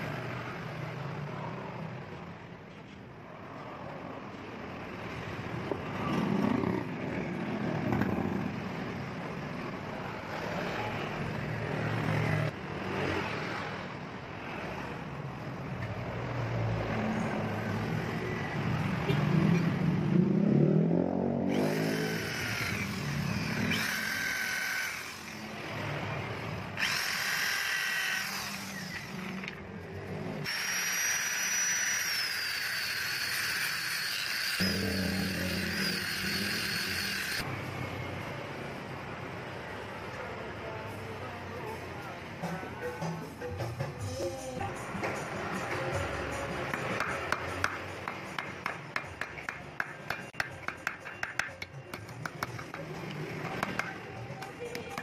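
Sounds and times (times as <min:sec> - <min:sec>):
high-pitched tool whining: 0:21.5 - 0:25.5, 0:26.8 - 0:29.4, 0:30.4 - 0:37.5
power tool motor running: 0:21.5 - 0:25.7, 0:26.8 - 0:29.5, 0:30.4 - 0:37.4.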